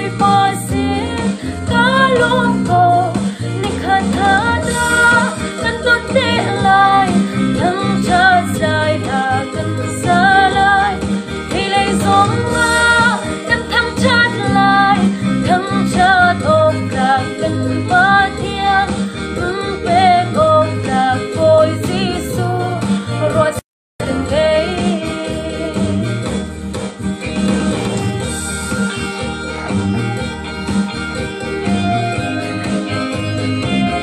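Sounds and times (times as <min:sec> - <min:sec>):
woman singing with vibrato: 0:00.0 - 0:26.2
instrumental accompaniment: 0:00.0 - 0:34.0.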